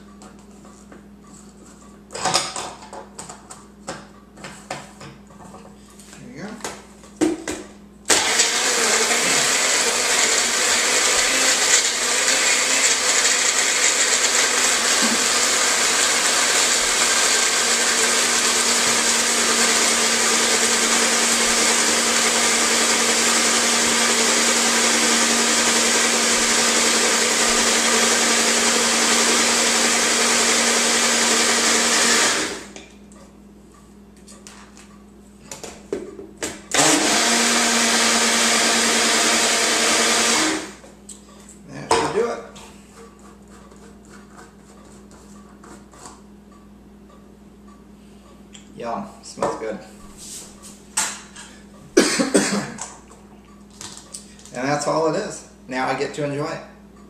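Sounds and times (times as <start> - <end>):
blender motor running: 8.1 - 32.8, 36.7 - 40.8.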